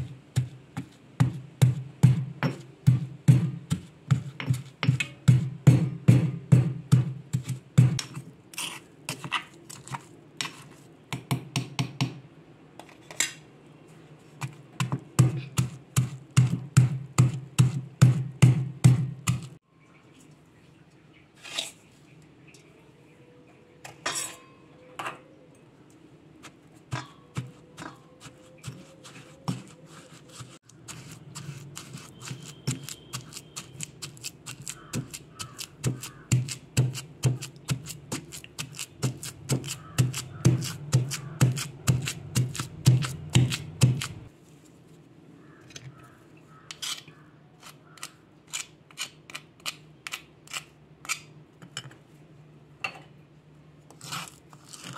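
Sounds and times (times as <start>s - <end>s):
pestle pounding in stone mortar: 0.0s - 8.2s, 14.8s - 19.6s, 30.8s - 44.3s.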